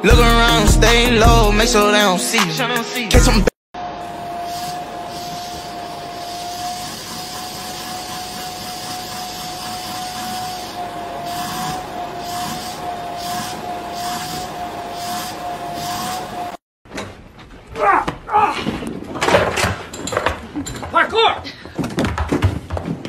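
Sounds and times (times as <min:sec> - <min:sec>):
vacuum cleaner whining: 0:03.8 - 0:16.6.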